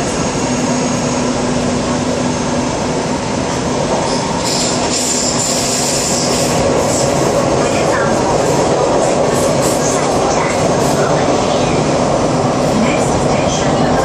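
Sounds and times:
subway car rumbling in tunnel: 0.0 - 14.0
high wheel squeal: 4.1 - 6.4.

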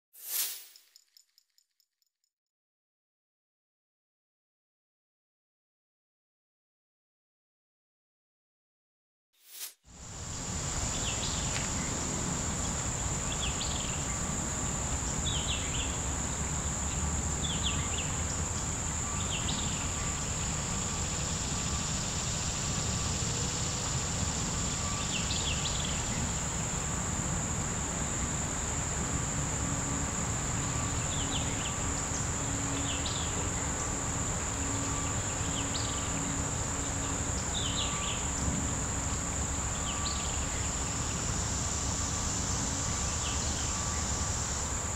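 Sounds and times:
short chirps: 0.2 - 1.6
insects droning: 9.9 - 44.9.

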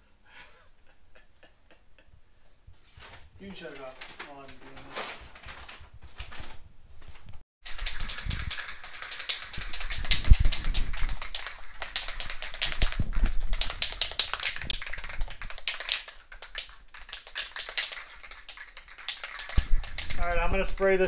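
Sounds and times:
spray can ball rattling: 7.6 - 21.0.

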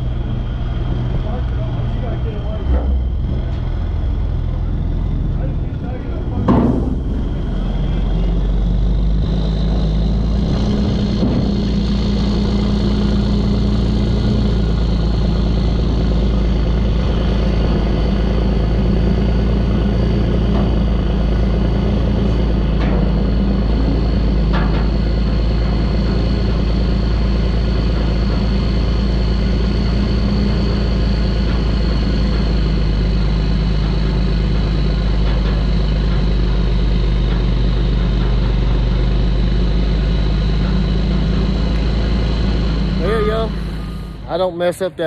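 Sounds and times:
diesel truck engine running: 0.0 - 45.0
thin high whine: 39.0 - 45.0.

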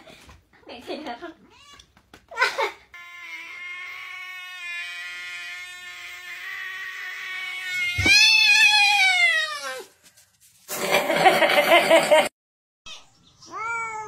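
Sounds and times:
cats yowling: 3.0 - 9.9.

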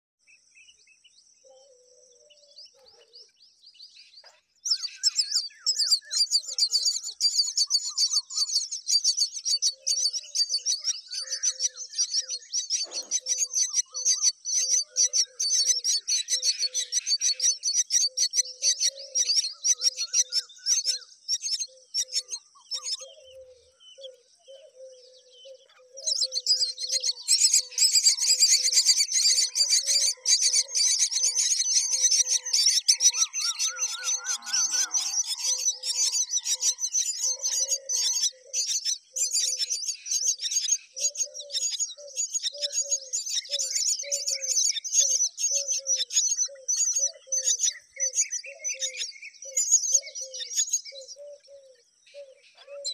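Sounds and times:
lower bird call: 0.6 - 52.9
nestlings chirping: 2.2 - 52.9.

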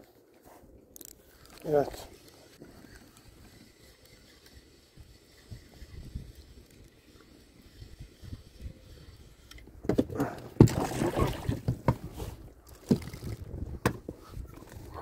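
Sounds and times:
knocks and thumps against boat: 9.8 - 12.2
splashing water: 10.6 - 11.6.

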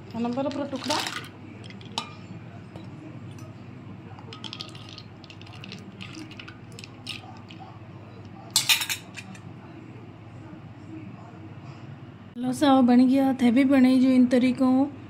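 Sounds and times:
ice and spoon clinking in pot: 0.2 - 2.2, 4.2 - 7.6.

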